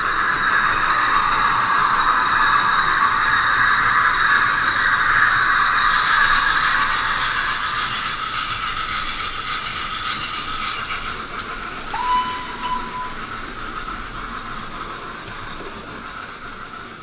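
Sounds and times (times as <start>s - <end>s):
model train running: 0.0s - 17.0s
short high tone: 12.0s - 13.2s.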